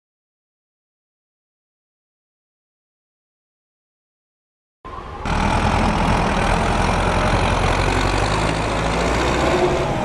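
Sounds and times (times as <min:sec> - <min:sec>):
tractor diesel engine under load: 0:05.2 - 0:10.0.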